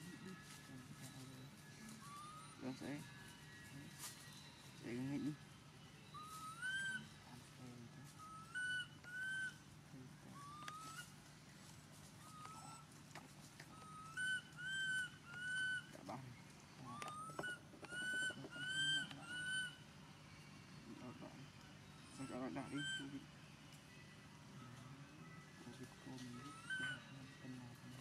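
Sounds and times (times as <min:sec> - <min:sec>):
faint low hum: 0:00.0 - 0:28.0
bird whistling calls: 0:02.0 - 0:03.0, 0:06.0 - 0:09.6, 0:10.3 - 0:11.2, 0:12.2 - 0:12.9, 0:13.7 - 0:16.2, 0:16.8 - 0:19.8, 0:22.0 - 0:23.2, 0:26.1 - 0:27.7.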